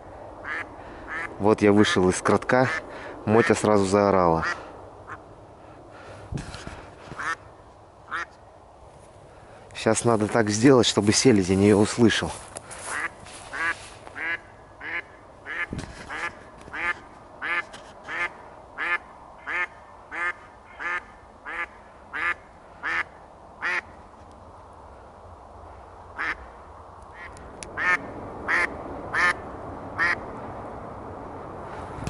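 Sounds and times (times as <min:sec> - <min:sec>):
duck quacking loudly: 0:07.2 - 0:07.4, 0:12.9 - 0:23.9.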